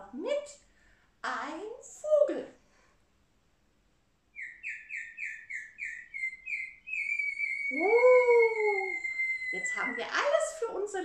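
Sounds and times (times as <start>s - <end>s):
person whistling birdsong: 4.4s - 10.0s
voice singing ooh: 7.6s - 10.1s.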